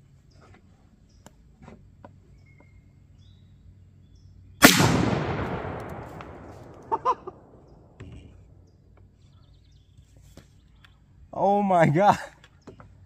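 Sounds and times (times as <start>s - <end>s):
shotgun shot with echo: 4.6s - 8.0s.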